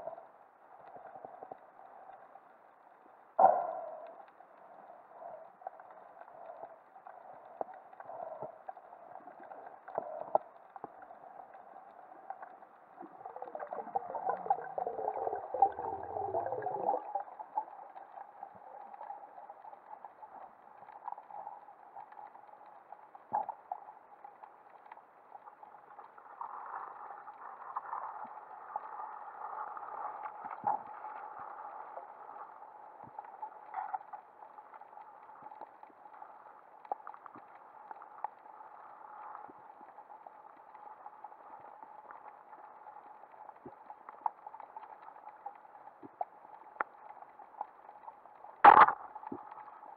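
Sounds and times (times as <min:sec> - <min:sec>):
faint underwater clicks: 0:00.0 - 0:49.9
muffled underwater wash: 0:00.0 - 0:49.9
gurgling with falling pitch: 0:13.2 - 0:17.2.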